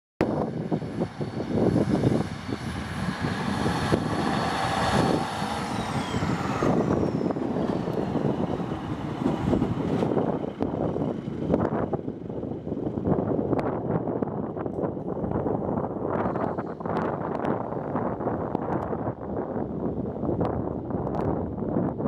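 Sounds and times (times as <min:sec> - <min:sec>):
diesel train engine rumbling: 0:00.2 - 0:21.8
faint high whine: 0:04.7 - 0:08.0.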